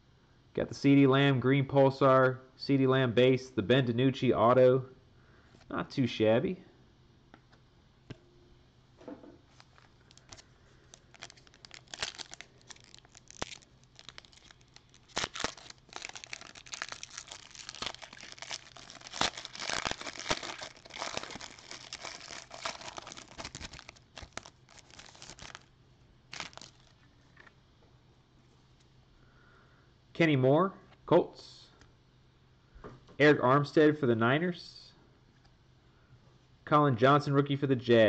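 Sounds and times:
foil wrapper tearing and crinkling: 0:09.5 - 0:25.7, 0:26.3 - 0:27.0.

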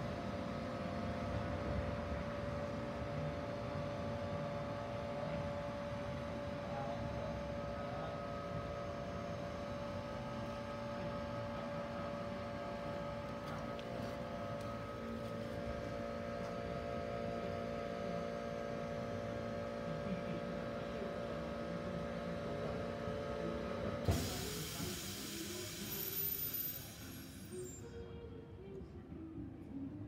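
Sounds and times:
low street rumble: 0:00.0 - 0:30.0
tram electrical hum: 0:00.0 - 0:30.0.

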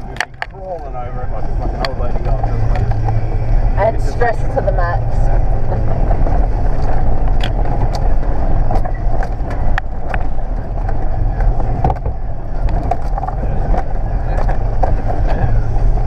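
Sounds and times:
sharp clicks and knocks: 0:00.0 - 0:00.9, 0:06.0 - 0:15.5
low engine drone: 0:00.0 - 0:16.0.

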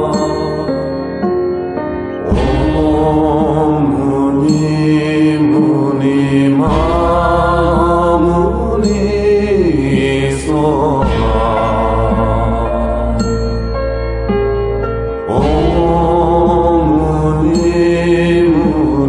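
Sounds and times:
voice chanting melodically: 0:00.0 - 0:01.3, 0:02.2 - 0:13.8, 0:15.3 - 0:19.0
sustained backing music: 0:00.0 - 0:19.0.

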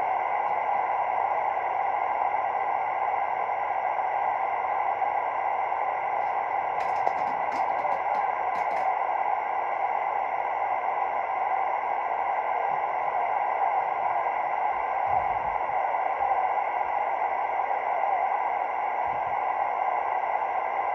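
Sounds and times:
faint steady tones: 0:00.0 - 0:20.9
sharp clicks: 0:06.2 - 0:08.9.

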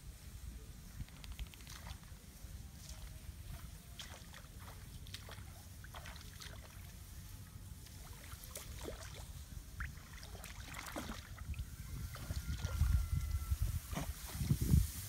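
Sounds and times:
grass and straw rustling: 0:00.0 - 0:15.0
water sloshing and splashing: 0:02.9 - 0:07.0, 0:07.8 - 0:12.8.

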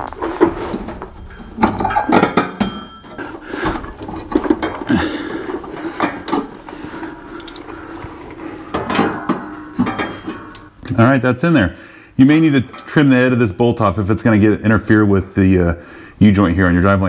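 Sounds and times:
metal spring clinking and scraping: 0:00.0 - 0:11.0, 0:12.5 - 0:13.3.

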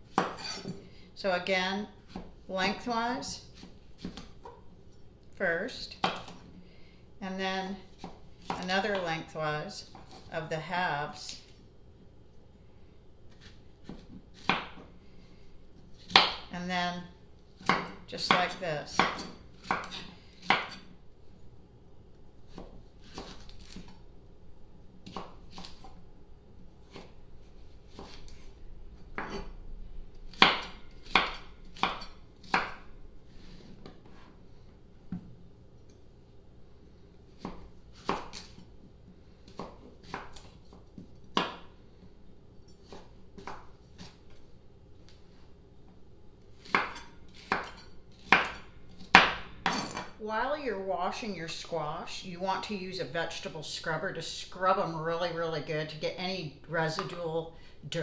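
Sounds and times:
knife chopping on wooden board: 0:00.1 - 0:00.8, 0:13.3 - 0:14.9, 0:16.0 - 0:16.4, 0:17.6 - 0:20.8, 0:27.9 - 0:28.3, 0:30.3 - 0:32.8, 0:37.4 - 0:38.6, 0:39.5 - 0:41.7, 0:46.6 - 0:50.1.

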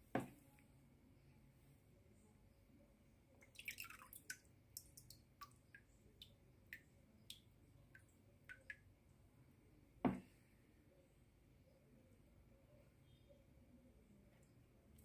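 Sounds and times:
water dripping and splashing: 0:03.4 - 0:08.8.

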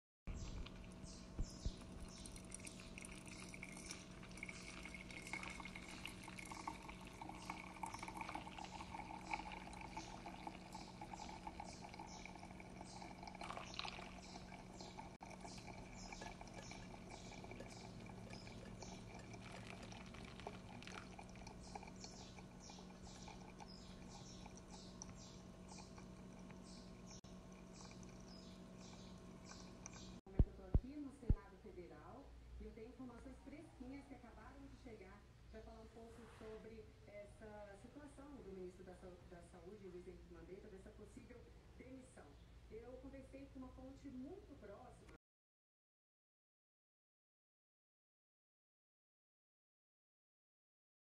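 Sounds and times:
water pouring onto coffee grounds: 0:01.8 - 0:30.0.

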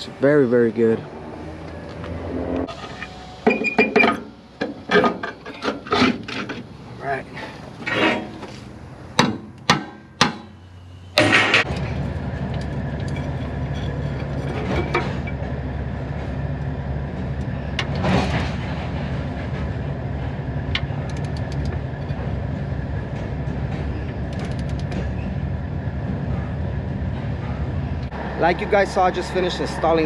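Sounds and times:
sharp metal clicks: 0:20.7 - 0:21.8, 0:24.3 - 0:25.1.

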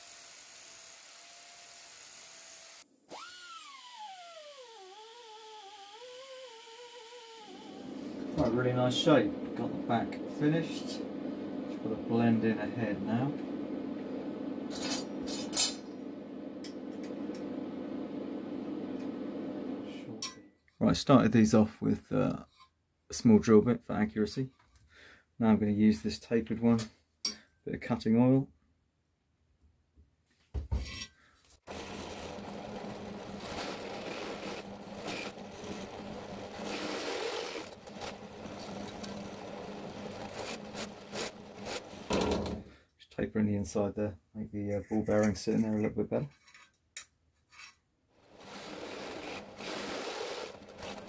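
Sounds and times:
steady low hum: 0:08.0 - 0:20.3
drill press cutting metal: 0:31.7 - 0:42.6, 0:48.2 - 0:51.0.

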